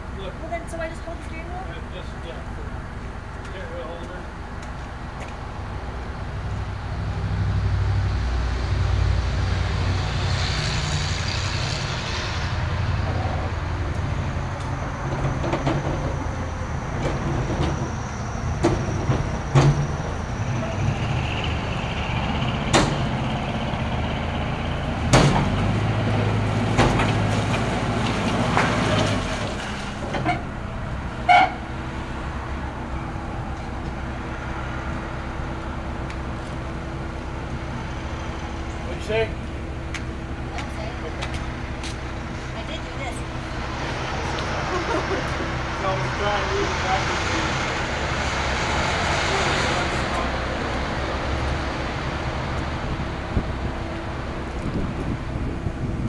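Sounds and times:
diesel truck engine running: 0.0s - 56.0s
sharp clanks and knocks: 18.6s - 20.1s, 22.7s - 23.2s.

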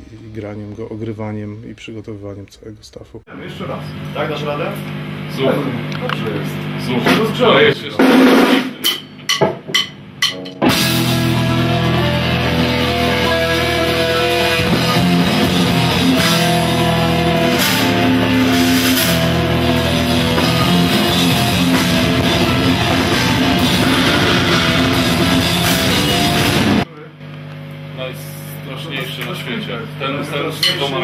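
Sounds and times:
distorted electric guitars: 3.6s - 26.9s
drum kit: 6.6s - 26.9s.

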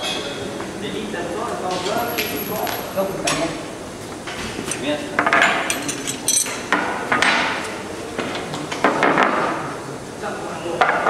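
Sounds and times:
spanners clinking on workbench: 5.3s - 6.7s.

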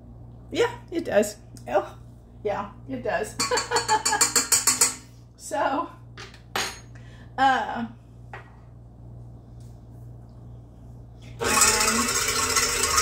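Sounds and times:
stand mixer motor running: 11.4s - 13.0s.

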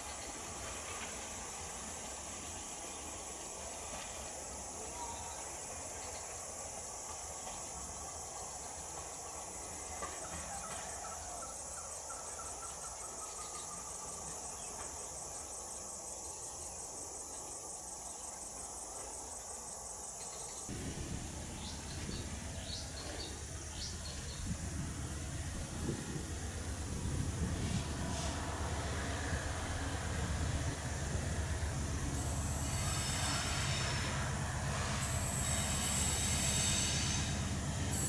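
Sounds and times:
crickets chirping: 0.0s - 38.0s
diesel locomotives rumbling: 20.7s - 38.0s.

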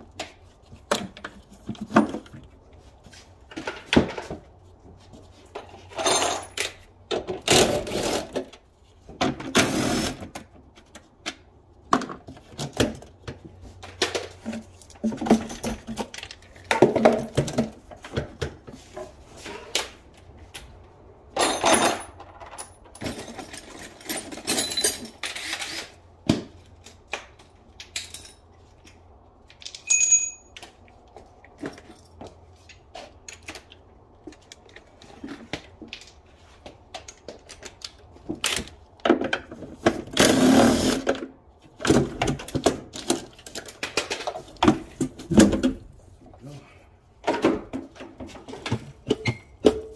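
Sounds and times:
metal tools clinking and clattering: 5.5s - 6.9s, 21.3s - 25.9s, 27.7s - 28.7s, 29.5s - 30.7s
scraping or rustling noises: 7.6s - 21.1s
ringing metallic clink: 29.7s - 30.5s.

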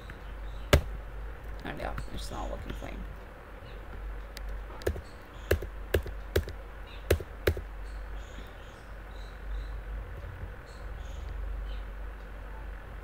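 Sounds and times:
computer keys clicking: 4.3s - 7.7s.

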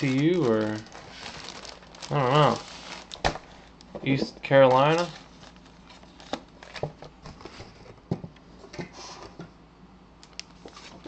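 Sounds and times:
plastic bag rustling: 0.0s - 7.0s.

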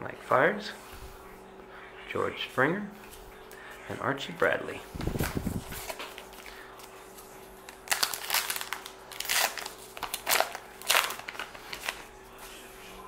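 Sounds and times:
wrapper tearing and crinkling: 7.7s - 12.0s.

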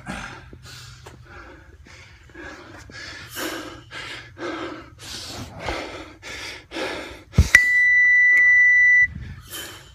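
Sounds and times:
man panting hard: 0.0s - 7.6s, 9.1s - 9.9s
loud steady electronic beep: 7.5s - 9.2s.

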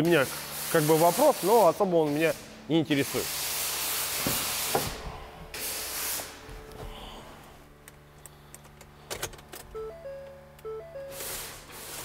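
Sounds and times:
background music simple melody: 9.7s - 11.7s.

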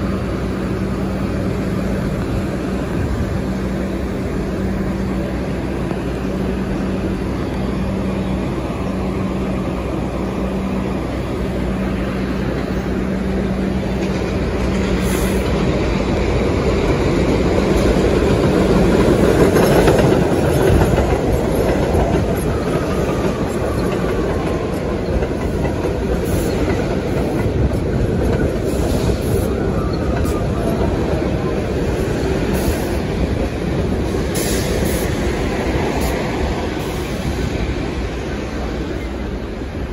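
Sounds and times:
train motor hum: 0.0s - 39.9s
train wheels clattering over rail joints: 12.5s - 37.0s.

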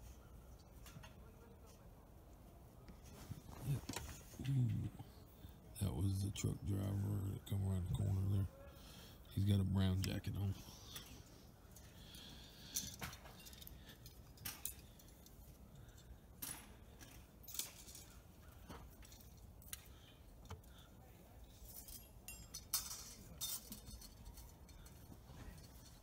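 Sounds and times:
faint metallic clinks: 10.8s - 26.0s.

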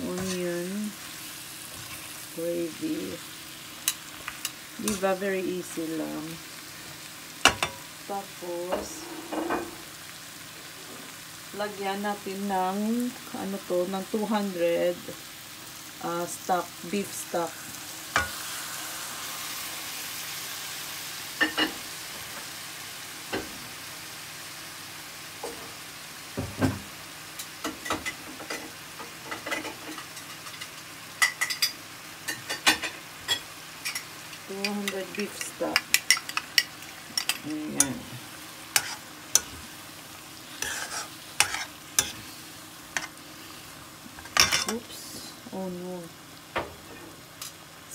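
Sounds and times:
gravy sizzling in a frying pan: 0.0s - 47.9s
spoon scraping and knocking pan: 8.7s - 9.8s, 38.7s - 39.6s, 40.6s - 42.2s.

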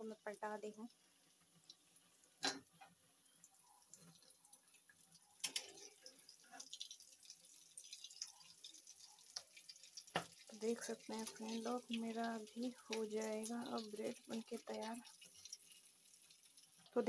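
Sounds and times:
bread sizzling in oil: 0.0s - 17.0s.

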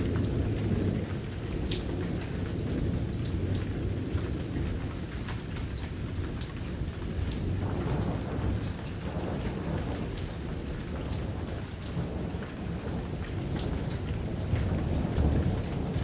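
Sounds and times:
low rumble of thunder: 0.0s - 16.0s
rain falling: 0.0s - 16.0s.

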